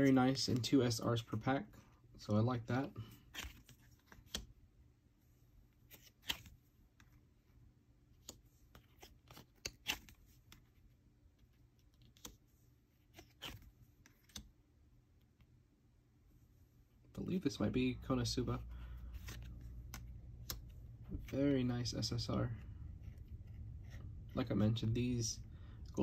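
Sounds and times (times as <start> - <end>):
trading cards clicking and swishing: 5.9 - 6.6, 8.2 - 10.7, 13.0 - 14.5, 19.0 - 24.5.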